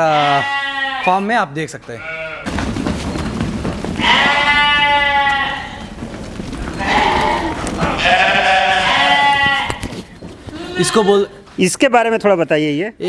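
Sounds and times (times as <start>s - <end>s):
sheep bleating: 0.0s - 1.2s, 2.0s - 2.5s, 4.0s - 6.0s, 6.8s - 9.9s, 10.5s - 11.4s.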